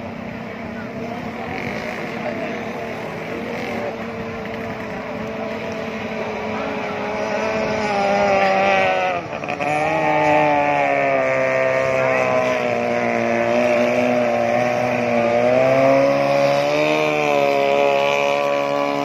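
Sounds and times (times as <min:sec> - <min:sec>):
motorboat engine whining: 0:00.0 - 0:19.0.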